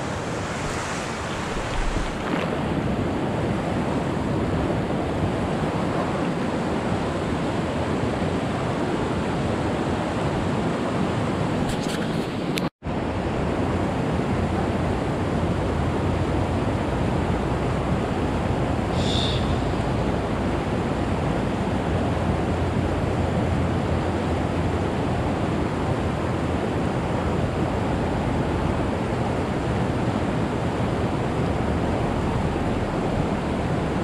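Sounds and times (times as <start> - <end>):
creek rushing over rocks: 0.0 - 3.8.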